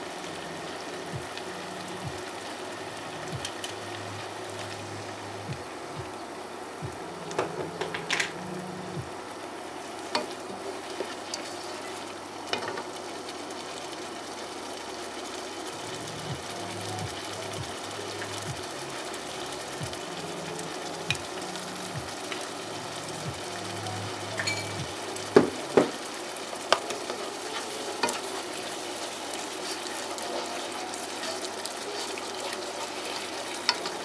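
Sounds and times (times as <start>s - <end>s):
food sizzling in a saucepan: 0.0s - 34.0s.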